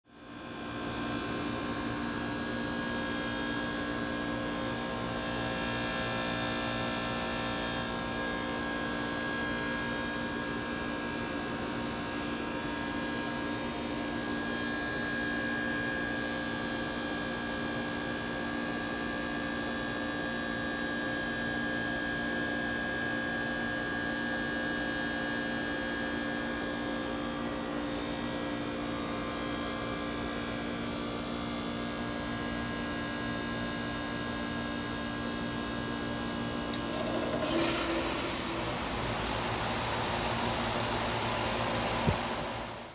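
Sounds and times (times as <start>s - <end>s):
heat pump compressor hum: 33.8s - 42.9s.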